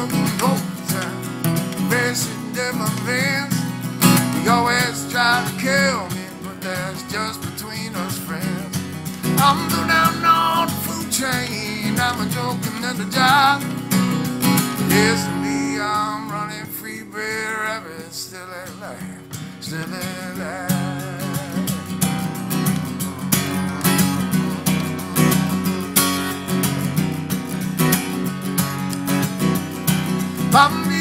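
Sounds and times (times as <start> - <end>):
man singing: 0.0 - 13.8, 14.7 - 22.2, 30.5 - 31.0
acoustic guitar strumming: 0.0 - 31.0.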